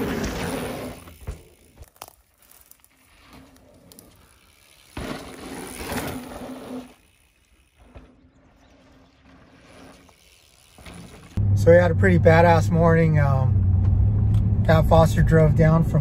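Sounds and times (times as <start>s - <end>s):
electric bike motor hum: 0.0s - 11.4s.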